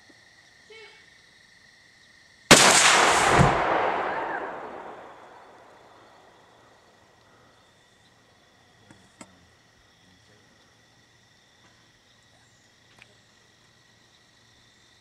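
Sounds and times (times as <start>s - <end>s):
propane tank blast: 2.5s - 6.2s
rifle shot crack: 2.5s - 6.5s.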